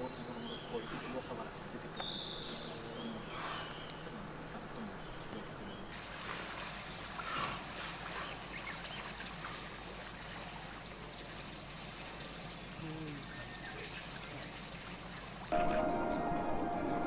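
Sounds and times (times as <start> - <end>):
water splashing and churning: 5.9 - 15.7.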